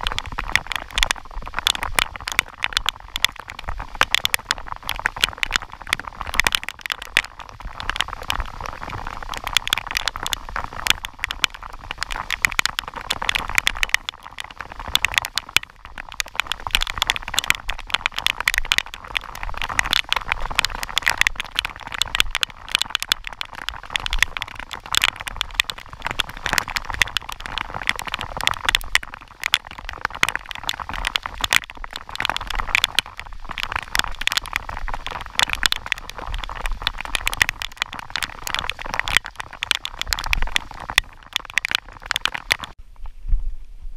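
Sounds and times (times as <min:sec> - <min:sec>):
heavy rain on river: 0:00.0 - 0:42.8.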